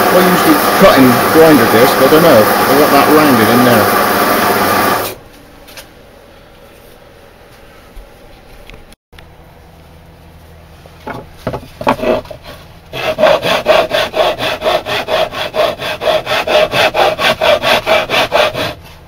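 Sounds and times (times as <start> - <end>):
hand tool rasping: 11.7 - 19.0.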